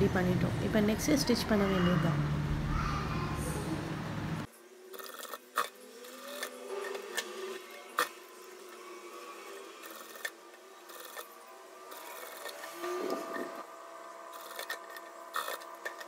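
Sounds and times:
faint motor whir: 0.0s - 16.0s
sewing machine stitching: 9.4s - 13.6s, 14.3s - 16.0s.

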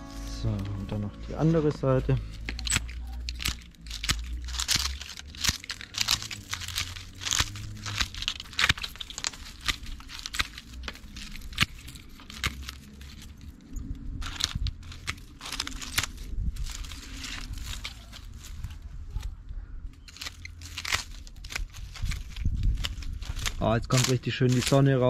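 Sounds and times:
brittle stalks crunching and rustling: 0.0s - 25.0s
secateurs snipping dry stems: 1.9s - 13.5s, 14.2s - 19.3s, 20.0s - 25.0s.

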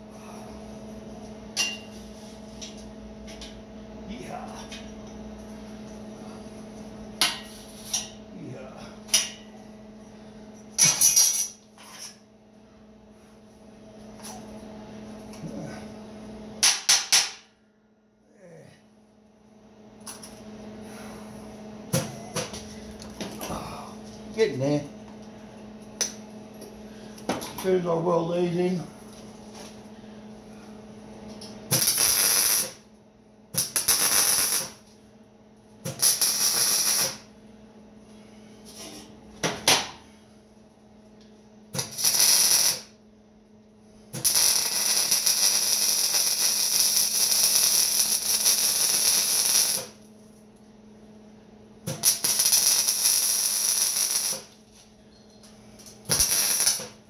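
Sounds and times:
steady low hum: 0.0s - 57.0s
welding arc crackling: 31.7s - 32.8s, 33.6s - 34.8s, 35.9s - 37.3s, 41.8s - 43.0s, 44.2s - 50.1s, 51.9s - 54.6s, 56.0s - 57.0s.

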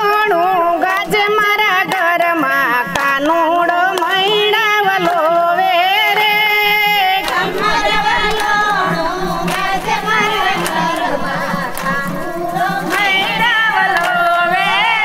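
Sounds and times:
women singing: 0.0s - 15.0s
percussion beat: 0.3s - 15.0s
hand claps: 0.8s - 15.0s
low drone: 6.9s - 15.0s.

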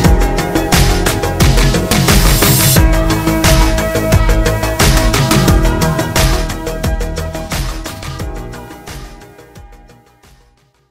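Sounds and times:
electronic music with driving beat: 0.0s - 10.9s.

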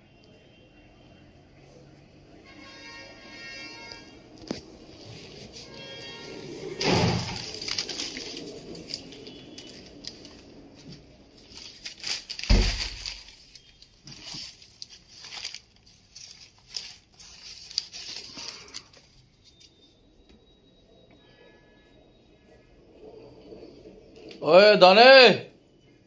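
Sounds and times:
newspaper rustling: 4.4s - 19.8s.

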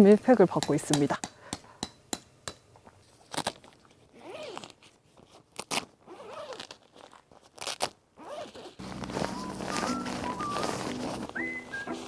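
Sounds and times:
fabric rustling and crinkling: 2.9s - 12.0s.

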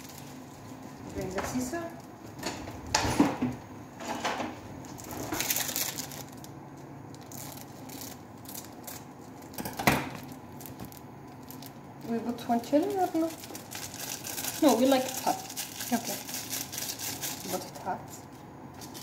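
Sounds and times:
kitchen utensils clattering: 2.4s - 5.5s.

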